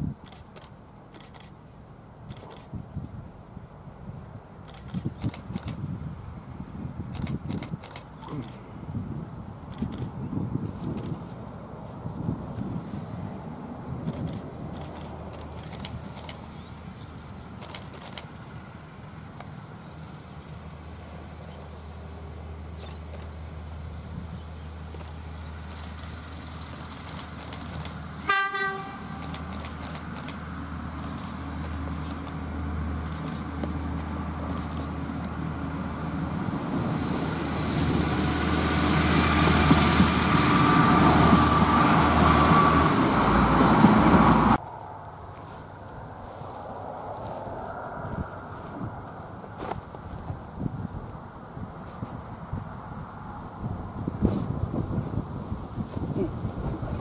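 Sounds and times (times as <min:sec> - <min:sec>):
diesel rail motor engine drone: 0:00.3 - 0:51.7
sharp clicks from running gear: 0:07.1 - 0:08.6, 0:14.0 - 0:16.4, 0:17.6 - 0:18.3, 0:24.9 - 0:28.0, 0:29.2 - 0:30.4, 0:33.0 - 0:35.4.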